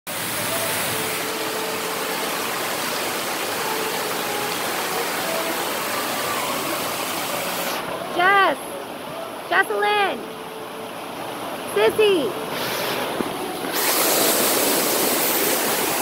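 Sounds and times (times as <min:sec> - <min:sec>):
water spraying and splashing: 0:00.1 - 0:09.5, 0:10.7 - 0:16.0
faint children's voices: 0:05.1 - 0:08.1.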